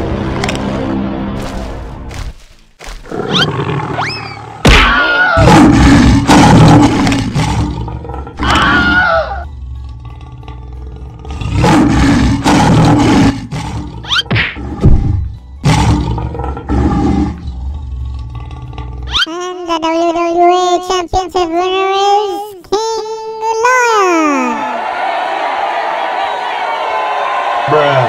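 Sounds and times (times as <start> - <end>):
lion roars and growls: 3.0 - 19.3.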